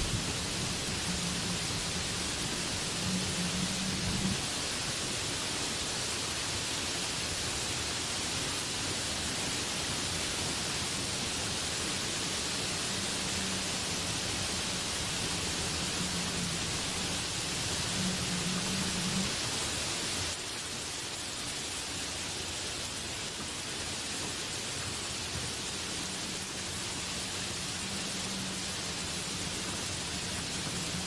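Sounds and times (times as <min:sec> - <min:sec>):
heavy rain on leaves: 0:00.0 - 0:31.0.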